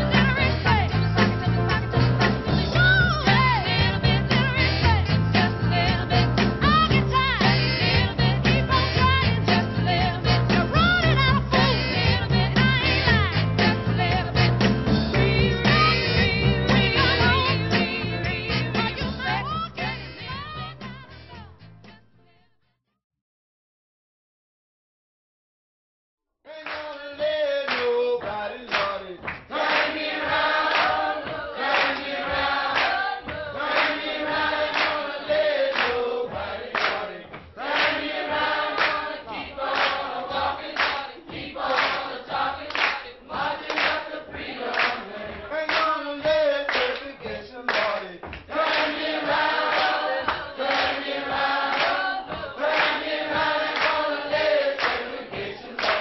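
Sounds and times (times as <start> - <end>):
sharp claps keeping the beat: 0.0 - 20.2, 26.5 - 56.0
choir singing: 13.7 - 19.4, 29.5 - 47.5, 48.5 - 56.0.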